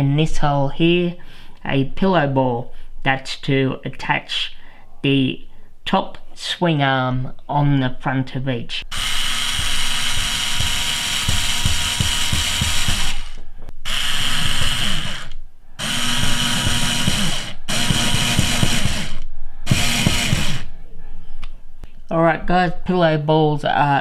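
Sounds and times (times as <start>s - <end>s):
cordless driver running: 8.9s - 20.7s.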